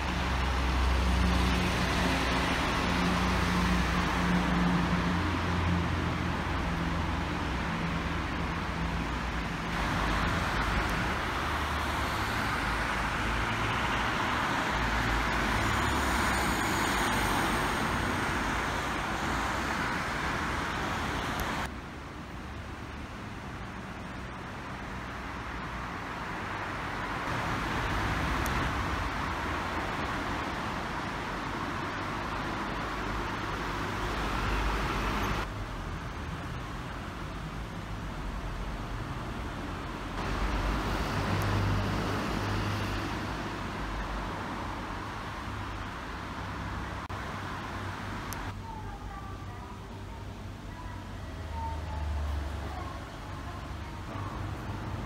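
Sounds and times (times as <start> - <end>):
cars passing: 0.0 - 48.6.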